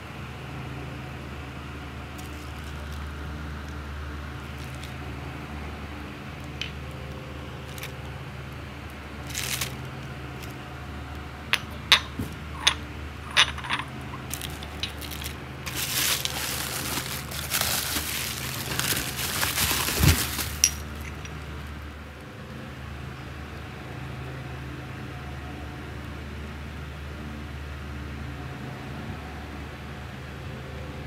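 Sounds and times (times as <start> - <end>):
steady low hum: 0.0 - 31.0
rustling: 9.2 - 10.6, 12.0 - 21.3
sharp clinks and taps: 11.5 - 15.0.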